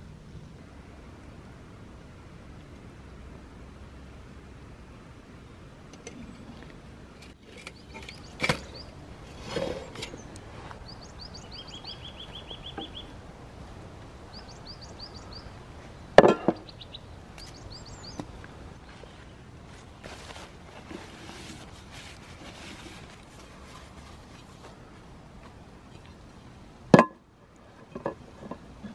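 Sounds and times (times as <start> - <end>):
small birds chirping: 6.2 - 20.3.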